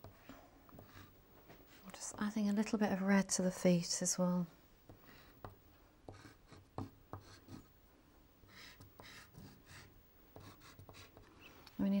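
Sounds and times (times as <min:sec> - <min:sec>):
pastel scratching on paper: 0:08.5 - 0:11.2.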